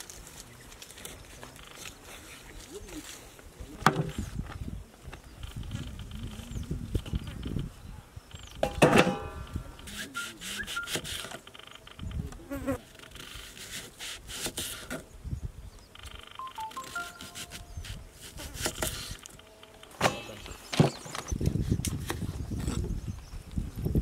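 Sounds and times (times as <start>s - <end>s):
insect buzzing: 15.9s - 20.0s.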